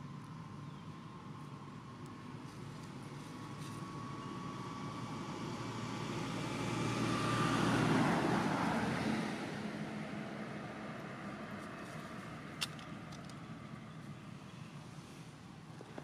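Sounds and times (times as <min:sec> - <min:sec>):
vehicle passing by: 0:02.9 - 0:12.6.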